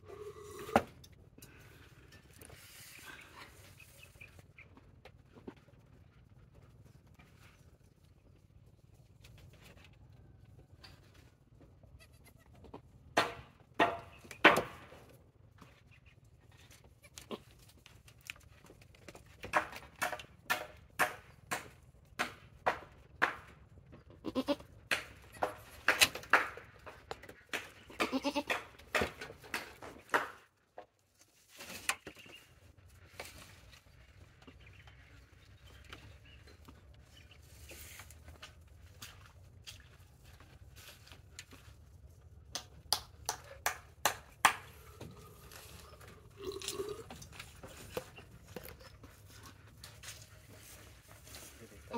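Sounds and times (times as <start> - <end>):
goat bleating and grunting: 24.2 - 24.7, 28.0 - 28.5.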